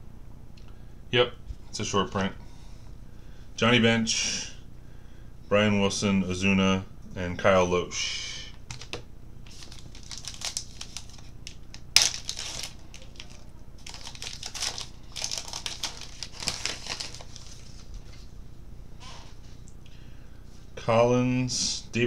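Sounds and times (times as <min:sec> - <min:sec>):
wrapper crinkling: 0:08.7 - 0:18.3
wrapper tearing sharply: 0:09.5 - 0:17.7.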